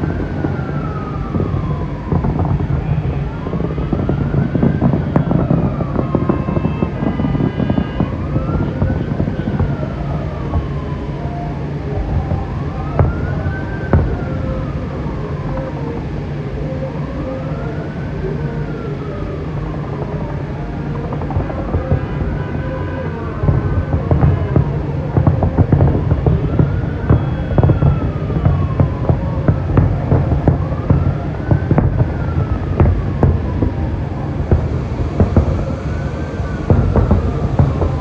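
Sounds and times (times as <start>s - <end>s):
dense low din: 0.0s - 38.0s
emergency siren wailing: 0.0s - 38.0s
sharp bangs: 23.4s - 38.0s.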